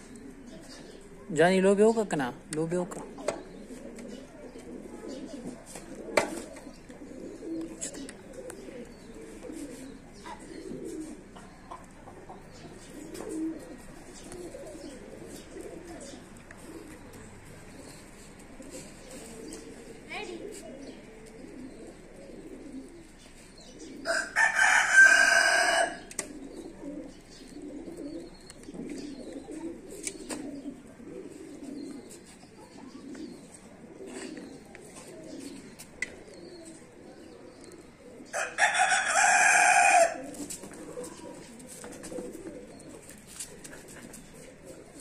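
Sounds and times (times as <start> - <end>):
pigeons cooing: 0.0 - 45.0
rooster crowing: 24.0 - 26.0, 38.3 - 40.3.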